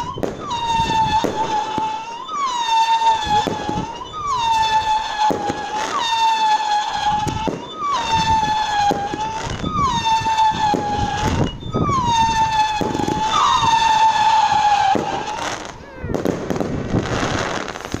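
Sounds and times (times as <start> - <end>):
firework crackling: 0.0 - 18.0
firework whistles: 0.0 - 18.0
firework pops: 14.8 - 18.0.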